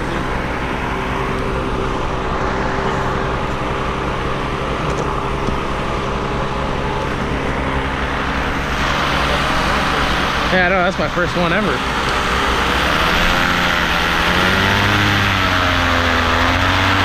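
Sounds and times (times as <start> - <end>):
engine drone: 0.0 - 17.0
even hum of tones: 0.0 - 17.0.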